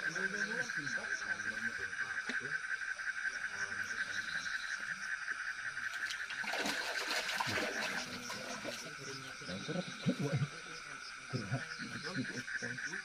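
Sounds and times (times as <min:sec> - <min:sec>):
insects and frogs chorus: 0:00.0 - 0:13.0
splashy rush: 0:06.4 - 0:08.8.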